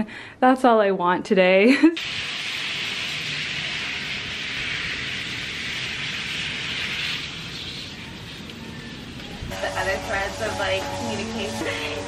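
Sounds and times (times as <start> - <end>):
hose spray hissing on leaves: 2.0 - 10.7.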